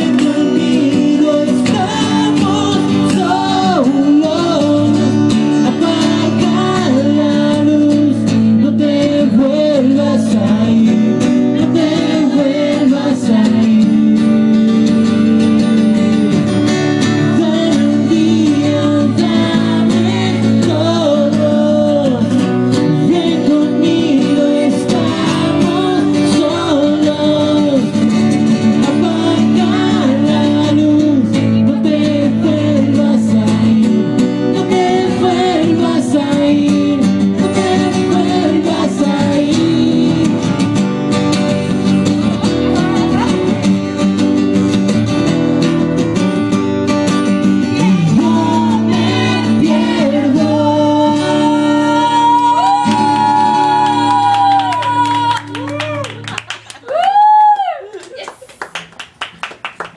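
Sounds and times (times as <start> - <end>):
man singing at a microphone: 0.0 - 16.4, 17.0 - 40.6, 47.6 - 54.0
strummed acoustic guitar: 0.0 - 55.6.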